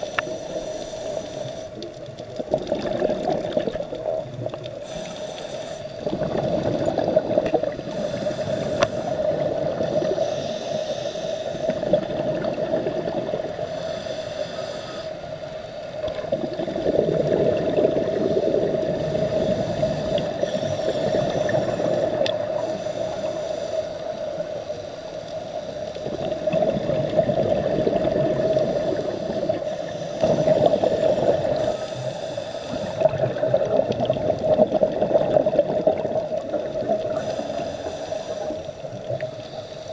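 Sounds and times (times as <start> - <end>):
high hiss: 0.0 - 1.8, 4.8 - 6.0, 7.9 - 11.8, 13.6 - 15.5, 18.3 - 26.0, 28.4 - 33.1, 37.0 - 39.9
exhaled bubbles gurgling underwater: 0.0 - 39.9.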